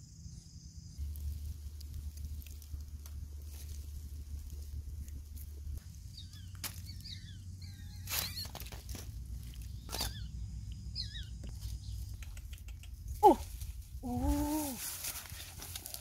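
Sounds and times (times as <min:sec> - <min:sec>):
dry leaves crackling: 0:01.0 - 0:10.3, 0:13.1 - 0:16.0
small animals squeaking: 0:06.2 - 0:08.9, 0:09.7 - 0:10.4, 0:11.0 - 0:11.5.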